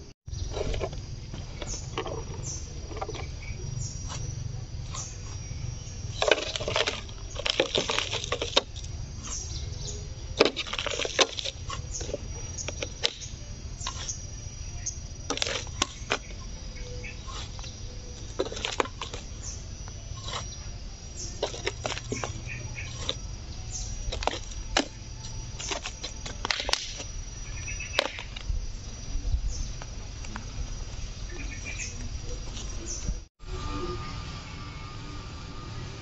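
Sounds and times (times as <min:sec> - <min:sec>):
trowel scraping soil: 0:00.4 - 0:03.3, 0:06.1 - 0:09.6, 0:10.4 - 0:14.3, 0:15.2 - 0:16.4, 0:17.0 - 0:27.1.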